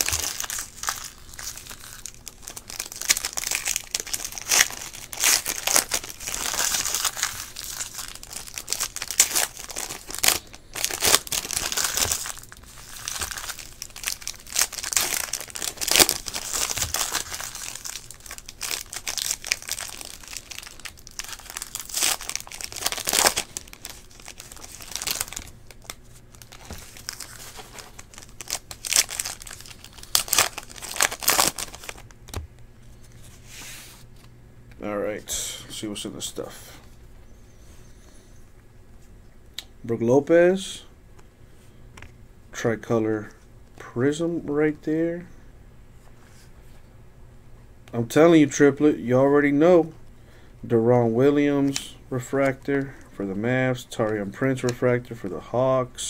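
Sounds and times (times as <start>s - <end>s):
foil wrappers crinkling and tearing: 0.0s - 32.4s.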